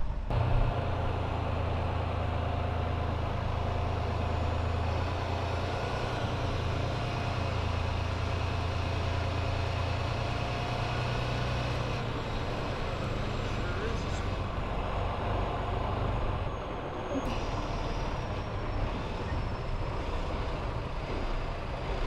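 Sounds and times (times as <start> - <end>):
diesel truck engine running: 0.0 - 22.0.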